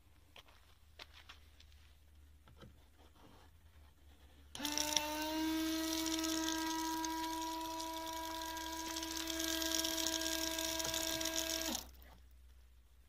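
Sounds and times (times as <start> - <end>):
electric water pump whining: 4.5 - 12.2
water hissing from nozzle: 5.5 - 11.9.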